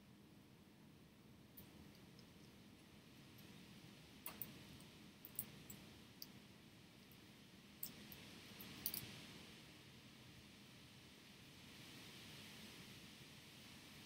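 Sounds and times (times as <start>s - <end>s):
low room hiss: 0.0s - 14.0s
small tool clicking on tiny parts: 4.2s - 6.4s, 7.8s - 9.1s.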